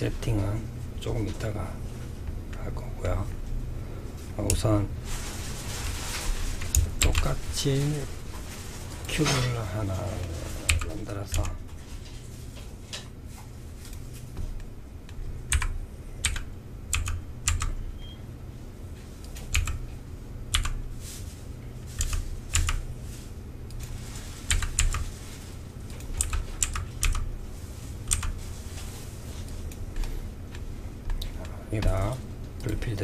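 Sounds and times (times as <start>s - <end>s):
low steady hum: 0.0s - 33.0s
keyboard keys clicking: 6.7s - 7.3s, 10.7s - 11.6s, 15.5s - 17.8s, 19.5s - 19.8s, 20.5s - 20.8s, 22.0s - 22.8s, 24.5s - 25.0s, 26.0s - 27.3s, 28.1s - 28.4s.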